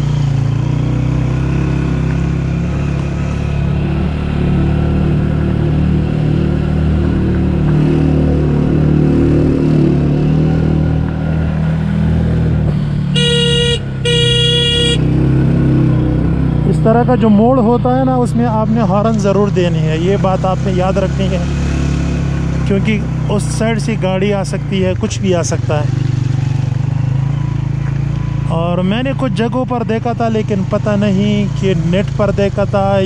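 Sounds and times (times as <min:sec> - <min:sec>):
motorcycle engine running: 0:10.9 - 0:16.6
motorcycle horn blasts: 0:13.1 - 0:15.1.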